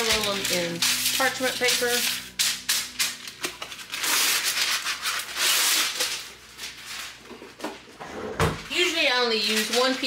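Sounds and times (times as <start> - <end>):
paper scraping on stone countertop: 0.0 - 7.2, 9.3 - 10.0
parchment paper rustling: 0.0 - 7.9, 8.6 - 10.0.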